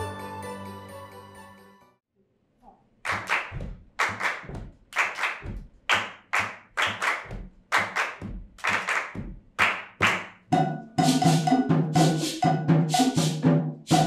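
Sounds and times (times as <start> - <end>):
group clapping in unison: 3.0 - 10.4.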